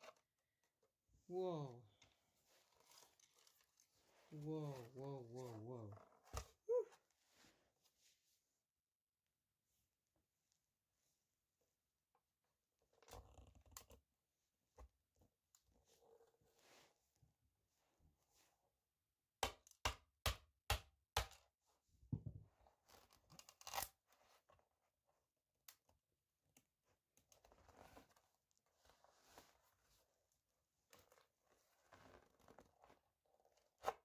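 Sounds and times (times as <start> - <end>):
plastic tearing crunch: 23.3 - 24.0.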